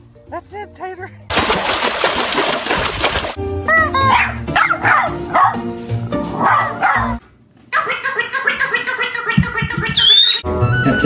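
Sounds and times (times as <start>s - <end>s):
background music: 0.0s - 2.4s, 3.3s - 7.2s, 9.7s - 11.0s
small dog barking and yipping: 4.0s - 5.6s, 6.4s - 7.2s.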